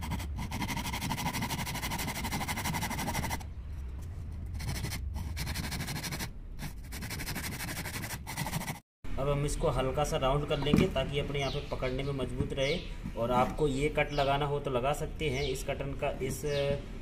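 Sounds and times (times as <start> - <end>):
hand saw cutting wood: 0.0 - 3.4.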